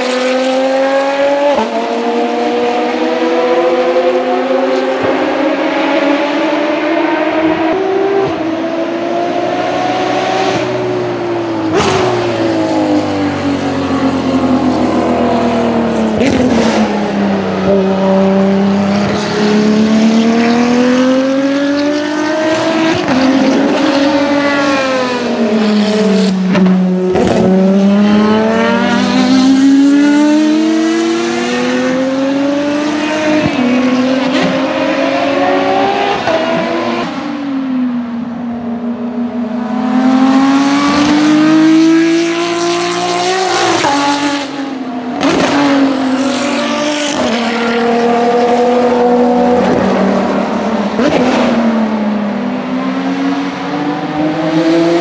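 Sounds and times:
race car engines at high revs: 0.0s - 55.0s.

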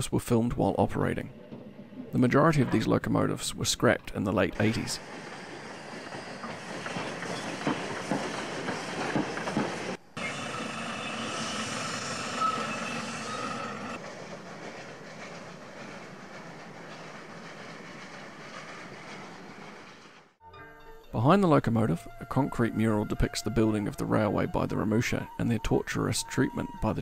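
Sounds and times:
steam train rattling and clicking: 4.6s - 10.0s, 13.8s - 20.3s
faint high squeal: 10.2s - 14.0s.

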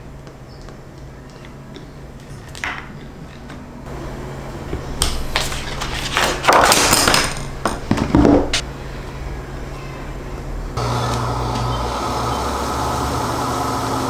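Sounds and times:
paper and plastic rustling: 5.3s - 7.0s.

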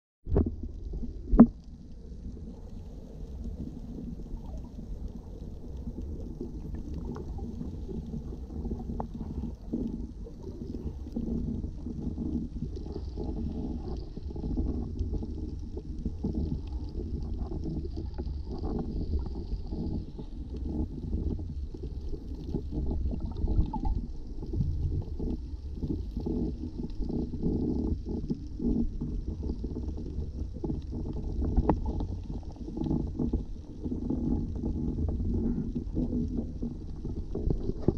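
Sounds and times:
underwater rumble of moving water: 0.2s - 37.9s
faint clicks and knocks: 0.3s - 37.9s.

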